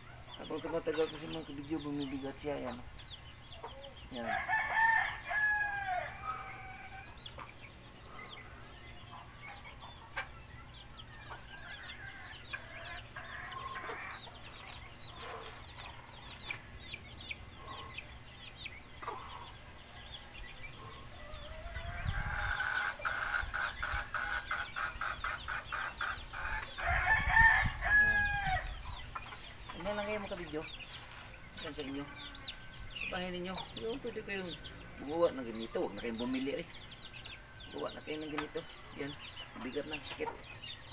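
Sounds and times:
chickens clucking: 0:00.0 - 0:40.9
rooster crowing: 0:04.2 - 0:07.1, 0:26.5 - 0:28.7.

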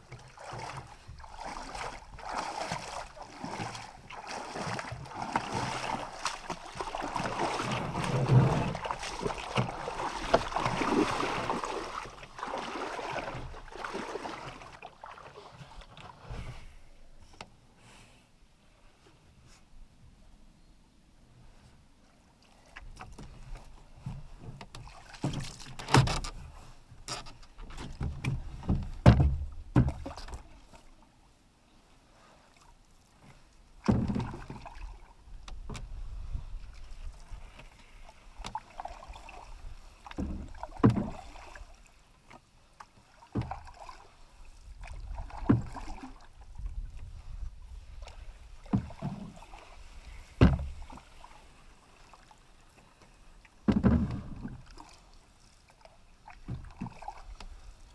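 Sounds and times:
paddle splashing in water: 0:00.0 - 0:16.8, 0:22.3 - 0:31.1, 0:32.2 - 0:57.9
paddle knocking against hull: 0:00.1 - 0:14.7, 0:22.9 - 0:26.4, 0:27.0 - 0:30.5, 0:33.8 - 0:34.9, 0:40.0 - 0:41.6, 0:43.2 - 0:44.0, 0:44.8 - 0:46.8, 0:48.1 - 0:51.0, 0:53.6 - 0:54.8, 0:56.3 - 0:57.6.

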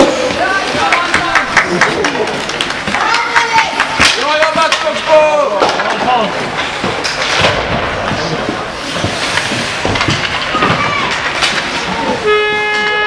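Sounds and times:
skates scraping on ice: 0:00.0 - 0:12.7
sticks and puck clacking: 0:00.0 - 0:13.0
loud steady horn: 0:12.2 - 0:13.0.

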